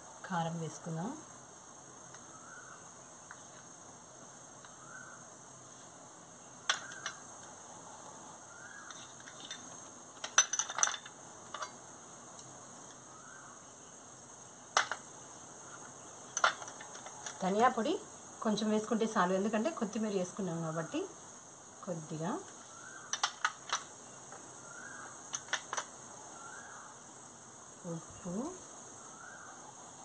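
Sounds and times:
insect chirring: 0.0s - 30.0s.

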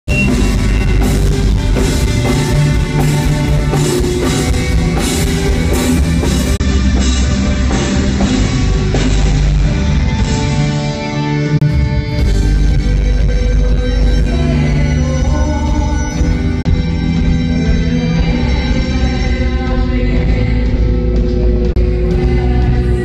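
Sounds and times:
drum kit beat: 0.1s - 10.8s
electric guitar: 0.1s - 23.0s.

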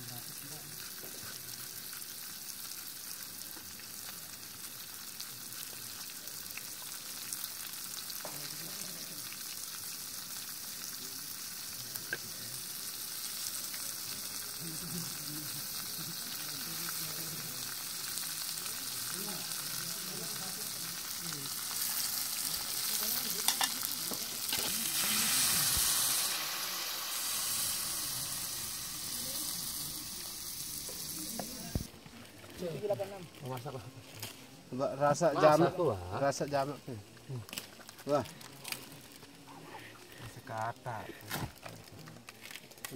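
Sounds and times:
water poured into hot pan: 0.0s - 33.7s
vegetables sizzling in a pan: 0.0s - 42.9s.

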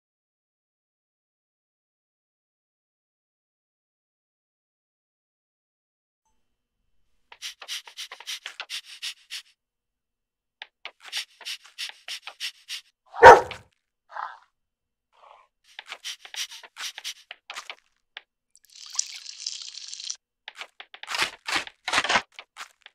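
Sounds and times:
dog panting quickly: 7.3s - 9.5s, 10.9s - 13.6s, 15.7s - 17.8s
dog barking: 13.1s - 14.4s.

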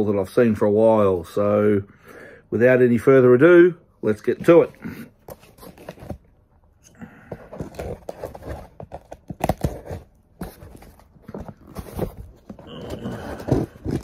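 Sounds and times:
plastic rustling: 7.3s - 14.0s.

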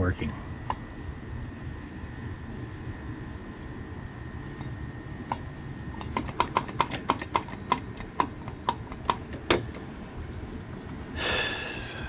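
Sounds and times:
vacuum pump clicking: 4.6s - 10.0s.

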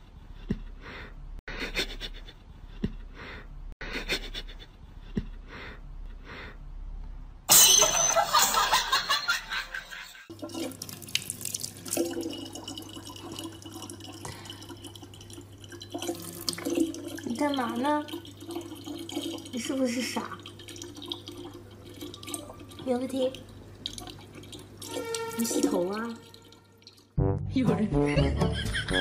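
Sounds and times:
person sniffing: 0.7s - 2.0s, 3.1s - 6.6s.

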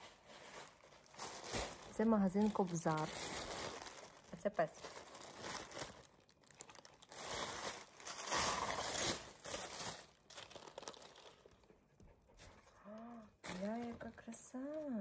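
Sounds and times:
packaging being crumpled and torn: 0.0s - 11.7s, 13.4s - 15.0s.

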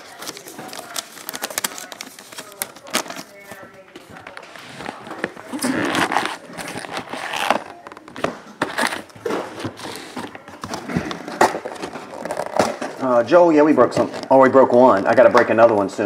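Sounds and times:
packs rustling and crinkling: 0.0s - 16.0s.

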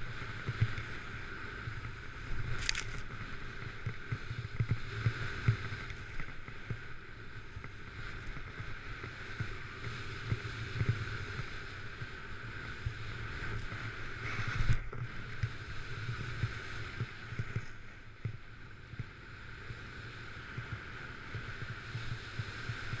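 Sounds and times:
snowboard scraping on snow: 0.0s - 17.9s.

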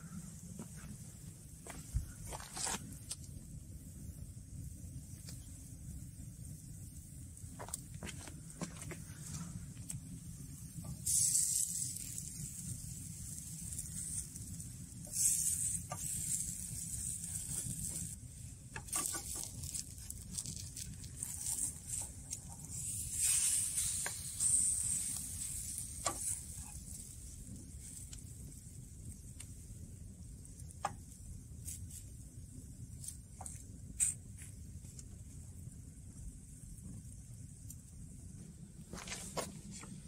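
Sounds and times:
pancake sizzling in oil: 10.8s - 32.2s.

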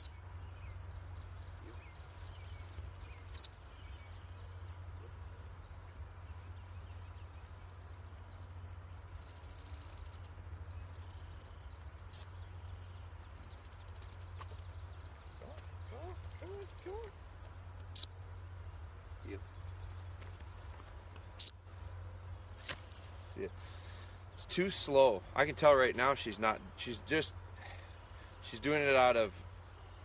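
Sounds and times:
dog whistle blasts: 18.0s - 18.2s.

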